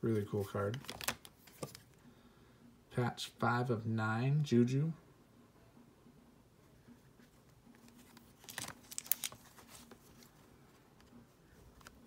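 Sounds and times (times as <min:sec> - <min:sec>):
trading cards rustling and clicking: 0:00.3 - 0:02.0, 0:07.3 - 0:12.0.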